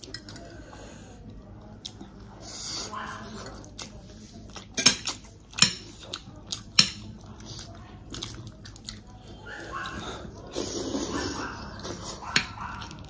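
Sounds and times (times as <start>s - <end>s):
person chewing food: 3.6s - 13.0s.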